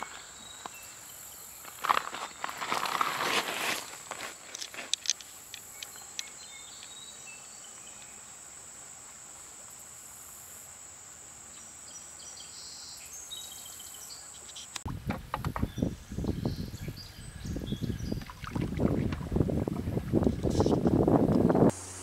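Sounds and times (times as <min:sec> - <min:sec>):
high-pitched insect trill: 0:00.0 - 0:03.2, 0:03.8 - 0:14.8
faint outdoor ambience: 0:00.0 - 0:22.0
wind on microphone: 0:14.9 - 0:21.8.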